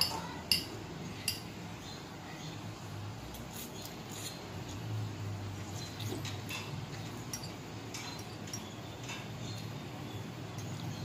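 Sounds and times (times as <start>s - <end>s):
fork clinking against glass bowl: 0.0s - 1.5s.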